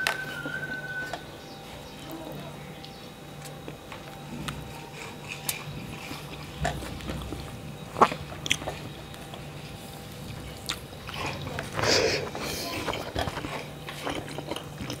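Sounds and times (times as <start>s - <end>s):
faint steady hum: 0.0s - 15.0s
chewing and mouth smacks: 2.8s - 15.0s
fingers working rice on a plate: 3.4s - 15.0s.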